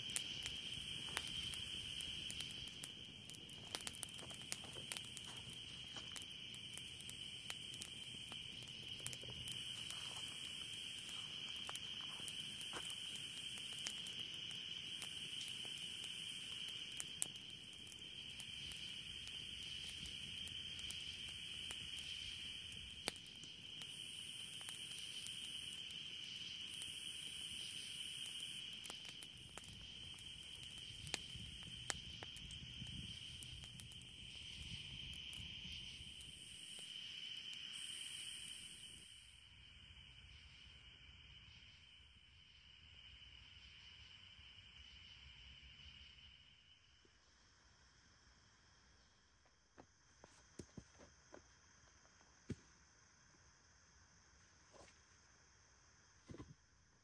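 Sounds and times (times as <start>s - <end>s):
campfire crackling and popping: 0.0s - 39.1s
higher insect trill: 0.0s - 56.1s
insects trilling: 0.0s - 57.0s.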